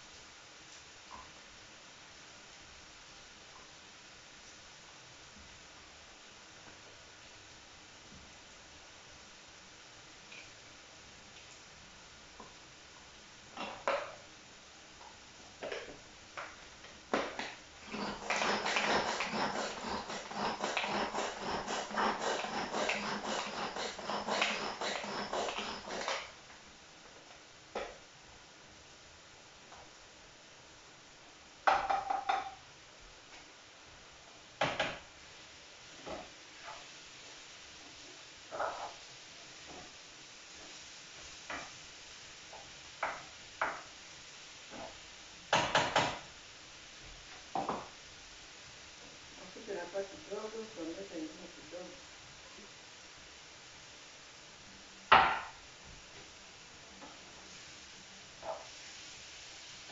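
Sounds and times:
faint steady hiss: 0:00.0 - 0:59.9
knife scraping a vegetable: 0:17.8 - 0:26.3.

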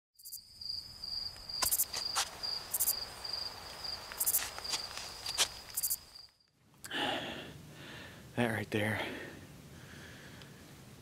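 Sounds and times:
crickets chirping: 0:00.2 - 0:06.6.

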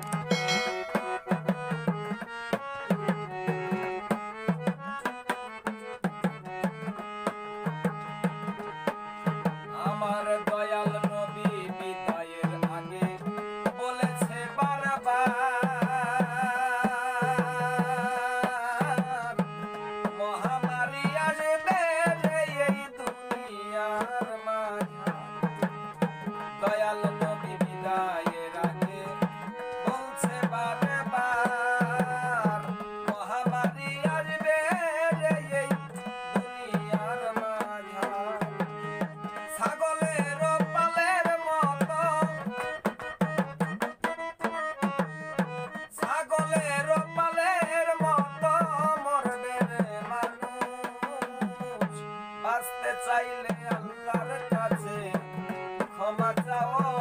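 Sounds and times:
hand drum rhythm: 0:00.0 - 0:02.2, 0:33.5 - 0:52.0
man singing: 0:00.0 - 0:02.3, 0:07.9 - 0:43.4, 0:44.1 - 0:57.0
harmonium: 0:00.0 - 0:57.0.

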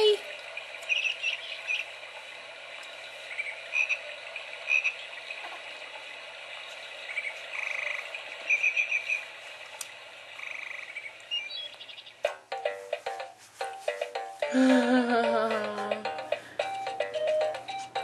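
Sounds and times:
recorded frogs croaking: 0:00.2 - 0:12.3.

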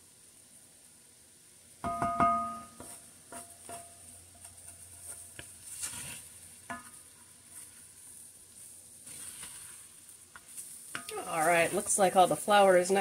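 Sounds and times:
spoon knocking against pot: 0:01.8 - 0:03.9
wooden spoon stirring thick roux: 0:02.8 - 0:13.0.

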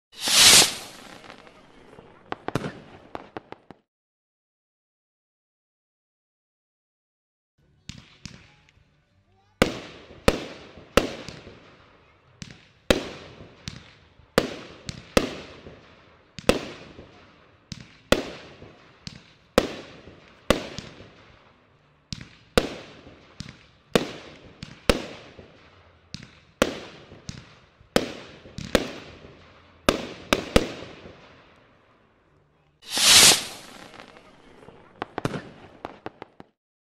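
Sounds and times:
firework bangs: 0:00.1 - 0:03.8, 0:32.9 - 0:36.6.

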